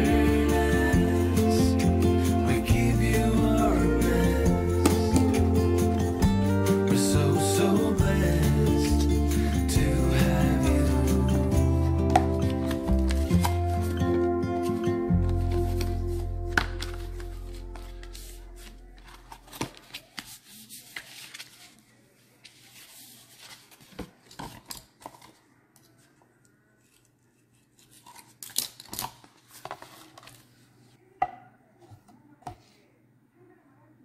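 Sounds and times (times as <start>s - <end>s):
background music: 0.0s - 19.4s
paper carton rustling and crinkling: 15.2s - 25.4s, 29.2s - 30.6s.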